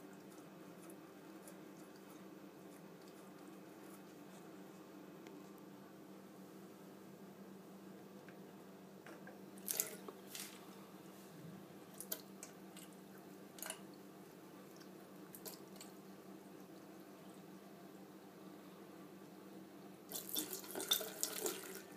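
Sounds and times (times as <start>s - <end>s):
cat lapping water: 0.0s - 4.6s
faint steady hum: 0.0s - 21.9s.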